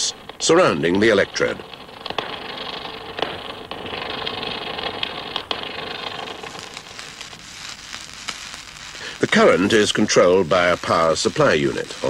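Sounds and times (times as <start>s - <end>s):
welding arc crackling hiss: 0.0s - 12.0s.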